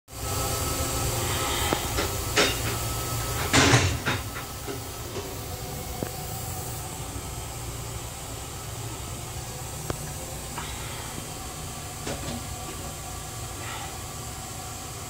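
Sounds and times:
train rumble and hiss: 0.1 - 15.0.

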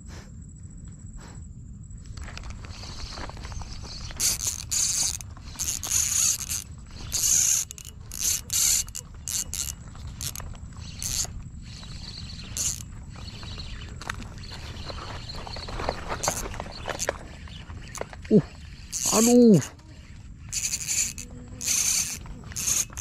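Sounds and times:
fishing reel cranking: 2.8 - 14.6, 16.0 - 18.0, 18.6 - 23.0.

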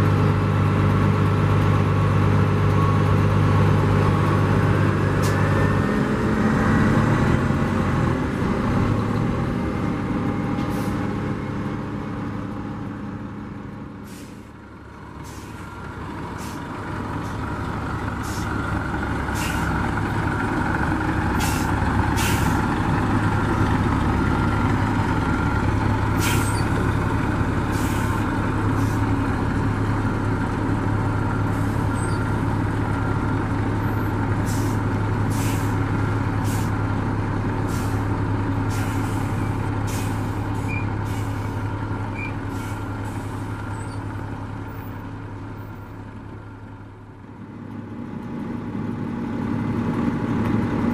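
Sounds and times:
bus engine idling: 0.0 - 50.9
diesel bus pulling away: 0.0 - 50.9
air brake hisses: 14.0 - 14.5, 21.4 - 22.6, 26.2 - 26.6, 34.5 - 35.8, 38.7 - 41.6.

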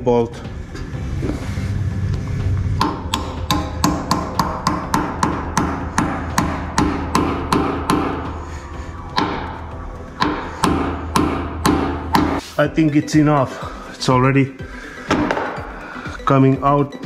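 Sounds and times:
hammer blows on metal pin: 2.8 - 8.4.

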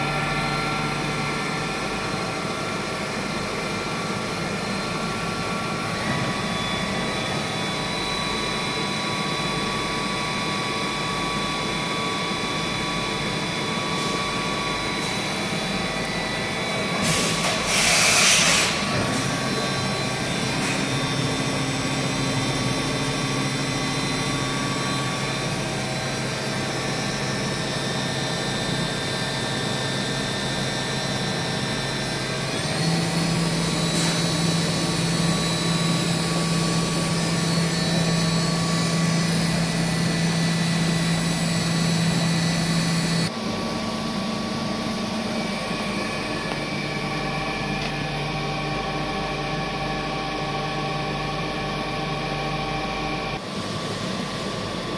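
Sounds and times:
rising whine: 0.0 - 17.7, 18.7 - 53.4
machining center humming: 0.0 - 17.9, 18.7 - 54.9
loud hiss: 17.0 - 18.8.

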